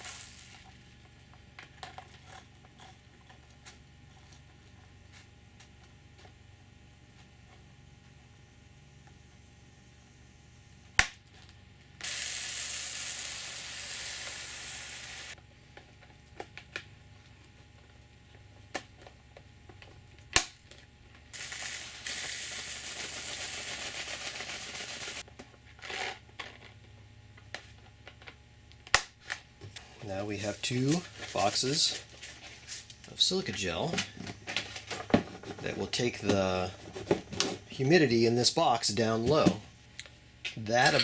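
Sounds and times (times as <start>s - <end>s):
beads pouring into plastic box: 0.0s - 0.6s, 21.4s - 25.2s.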